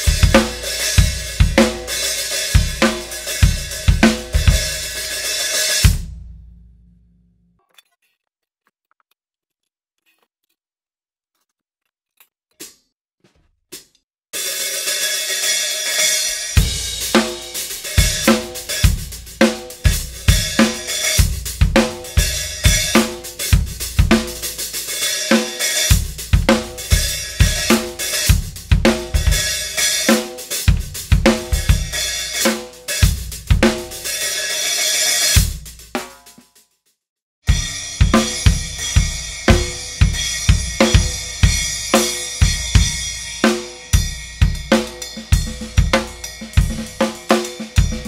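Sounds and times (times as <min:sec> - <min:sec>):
drum kit groove: 0:00.0 - 0:06.5, 0:13.4 - 0:36.7, 0:37.5 - 0:48.0
thin hi-hats: 0:14.4 - 0:36.7.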